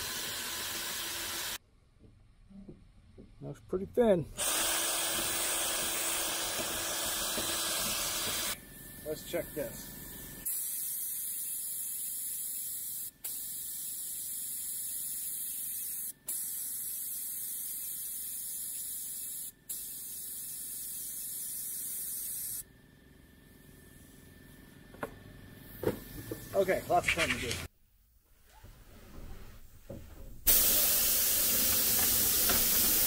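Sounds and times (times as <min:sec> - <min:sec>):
spray gun hissing: 0:04.4 - 0:09.7, 0:10.4 - 0:22.6, 0:30.5 - 0:33.0.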